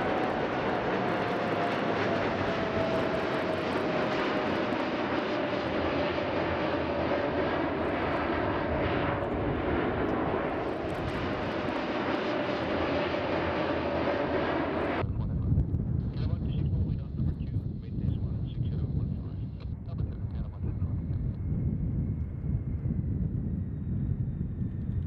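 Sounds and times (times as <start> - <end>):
jet engines roaring: 0.0 - 15.0
thin engine whine: 0.0 - 15.0.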